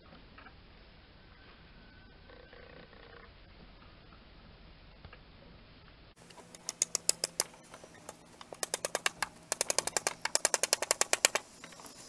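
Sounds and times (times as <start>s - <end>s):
hammer driving nails into wood: 8.6s - 11.5s.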